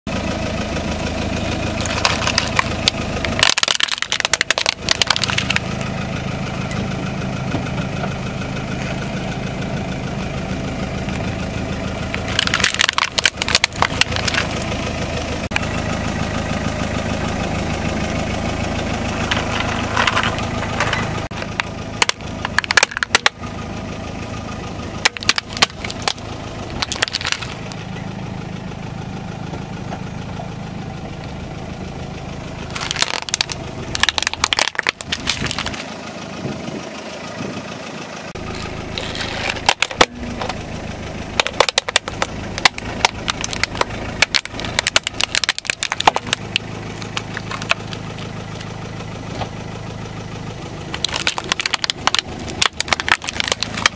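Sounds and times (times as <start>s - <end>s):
car engine idling: 0.0s - 53.9s
tyre crushing objects: 25.0s - 27.7s, 32.7s - 35.9s, 41.4s - 48.3s, 50.9s - 53.9s.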